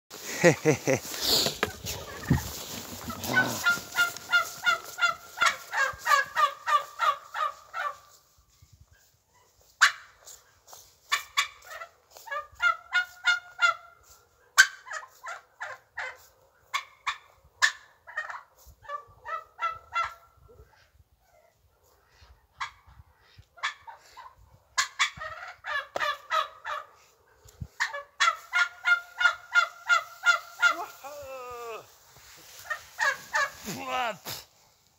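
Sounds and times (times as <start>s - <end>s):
fowl honking calls: 1.0s - 8.2s, 23.6s - 27.0s, 27.8s - 31.1s, 32.2s - 33.7s.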